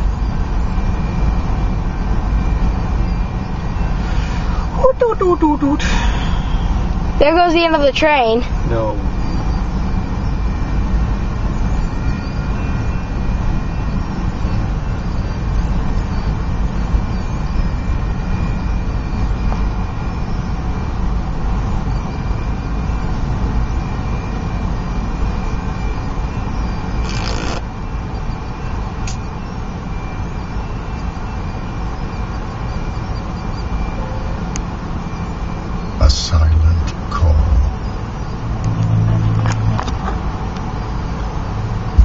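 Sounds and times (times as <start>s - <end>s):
freight train rumbling past: 1.6s - 9.2s, 36.0s - 41.9s
short rush of noise: 3.8s - 4.8s.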